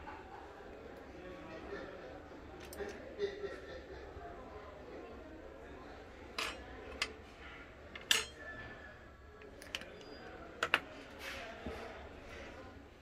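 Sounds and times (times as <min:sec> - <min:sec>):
tools set down on wooden table: 0:08.0 - 0:08.4, 0:10.6 - 0:10.9.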